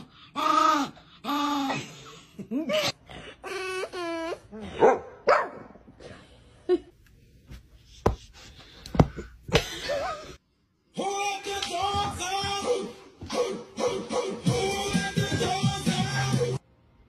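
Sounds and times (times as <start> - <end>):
dogs barking: 4.7 - 5.8
music with singing: 10.9 - 16.6.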